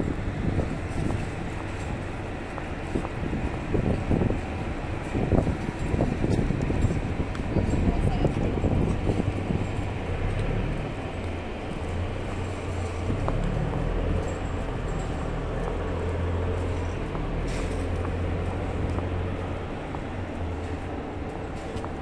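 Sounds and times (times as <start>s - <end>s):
boat engine rumbling: 0.0s - 22.0s.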